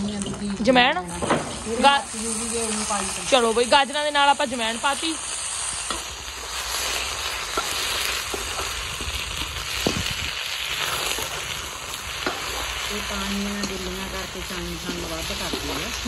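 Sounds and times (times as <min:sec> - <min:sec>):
vegetables sizzling in hot oil: 0:00.0 - 0:16.0.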